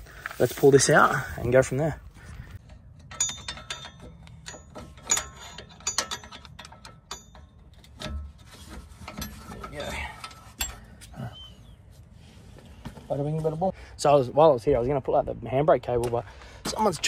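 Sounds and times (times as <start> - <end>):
tool clinking on metal brake parts: 2.6 - 8.4, 9.1 - 11.1.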